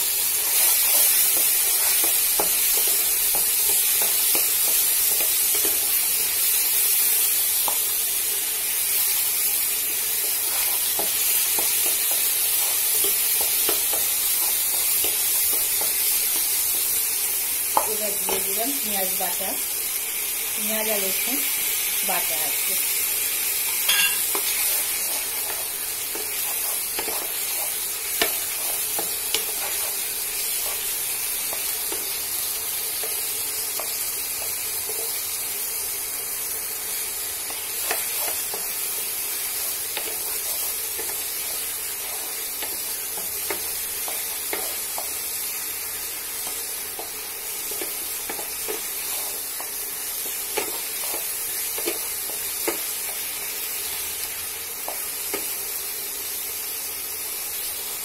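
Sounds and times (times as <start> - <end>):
food sizzling in hot oil: 0.0 - 58.0.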